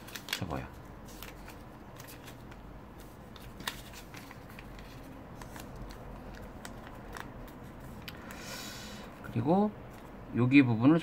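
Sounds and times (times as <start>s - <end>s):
paper rustling: 0.0s - 8.4s
paper crackling as creased: 3.3s - 8.4s.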